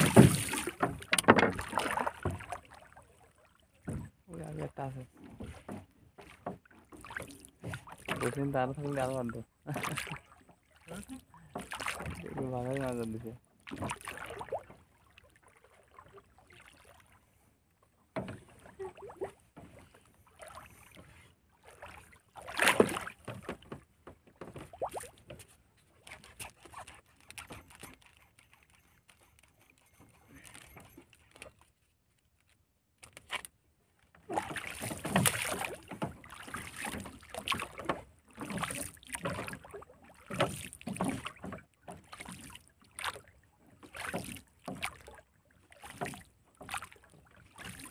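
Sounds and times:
fishing line rustling and clicking: 25.3 - 34.1.

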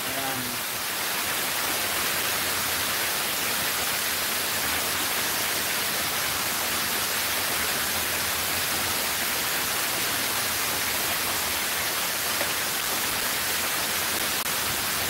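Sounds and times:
fountain water cascading: 0.0 - 15.0.

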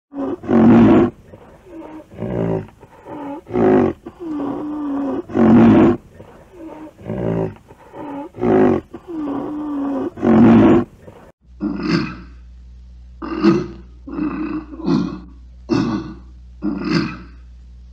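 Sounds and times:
low wavering rhinoceros calls: 0.1 - 11.2
rhinoceros harsh calls: 0.1 - 12.4.

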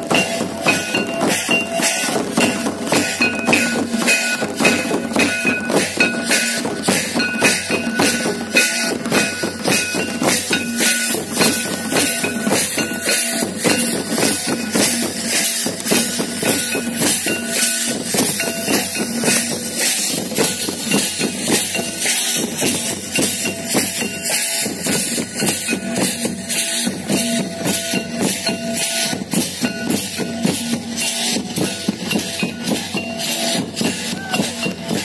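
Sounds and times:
brass hand cymbals: 0.0 - 35.0
folk drums beaten with sticks: 0.0 - 35.0.

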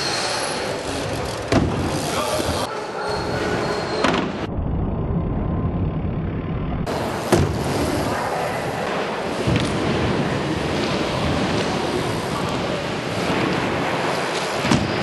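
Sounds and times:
bike tyres rumbling on ramps: 0.6 - 2.7, 3.4 - 15.0.

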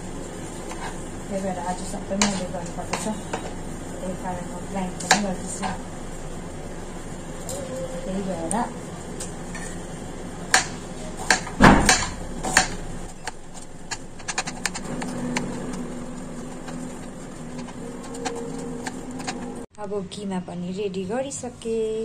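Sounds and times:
knife chopping on cutting board: 10.5 - 12.8.

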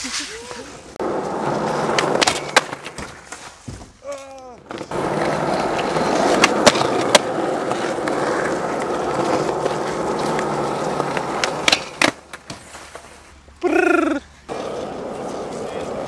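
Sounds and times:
skateboard wheels rolling on asphalt: 0.0 - 13.6, 14.3 - 16.0.

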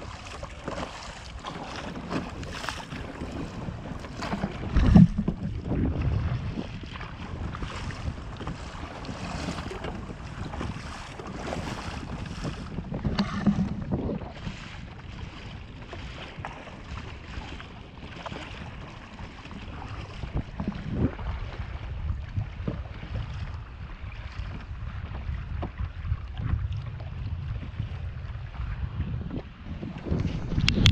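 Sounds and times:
paddle splashing in water: 0.0 - 30.9
wind buffeting microphone: 0.0 - 30.9.

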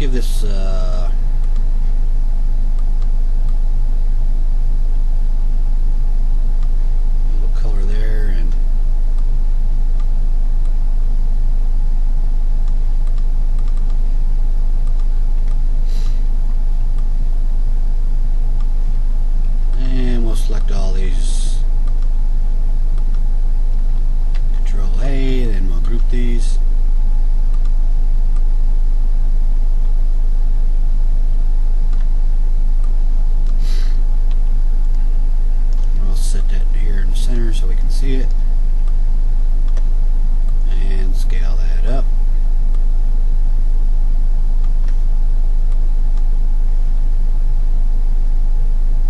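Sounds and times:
loud steady low hum: 0.0 - 49.0
computer mouse clicks: 12.6 - 14.0.

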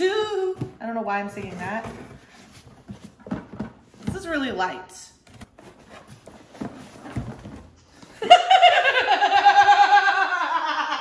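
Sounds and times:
cardboard box rustling: 0.5 - 4.6, 5.2 - 7.8
woman laughing high-pitched: 8.2 - 11.0.

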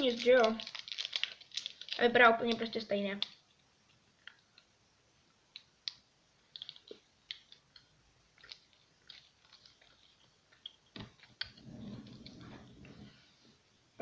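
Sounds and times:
faint chewing: 5.5 - 13.2.

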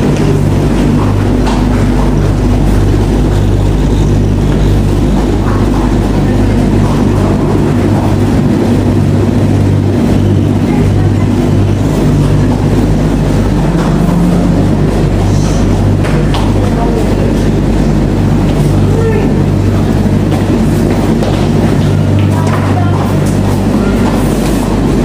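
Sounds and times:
tumble dryer humming: 0.0 - 25.0.

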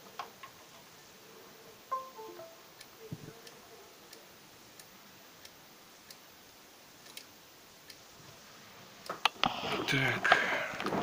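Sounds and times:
falling computer chime: 1.9 - 2.7.

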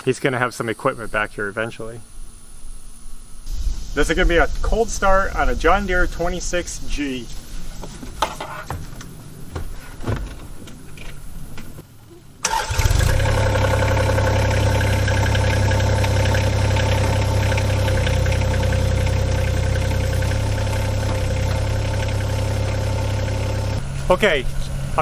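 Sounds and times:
clunks and knocks: 7.8 - 11.8
diesel engine starting and idling: 12.4 - 25.0.

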